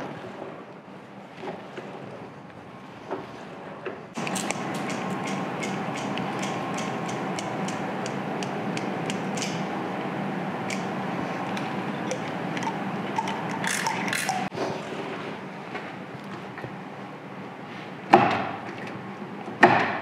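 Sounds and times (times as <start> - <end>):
steady hum: 4.1 - 19.5
hand tools clicking in lathe gears: 4.2 - 9.6, 11.5 - 14.5.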